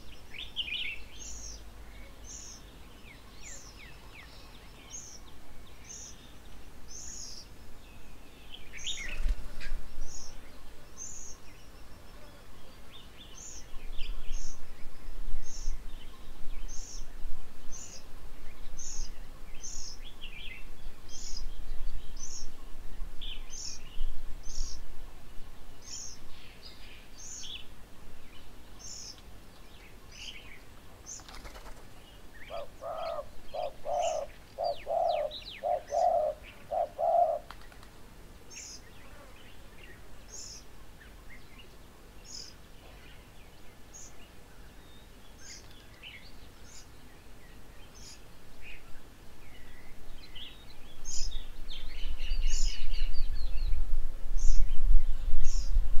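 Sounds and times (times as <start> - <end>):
bird chirps: 32.2 - 37.8.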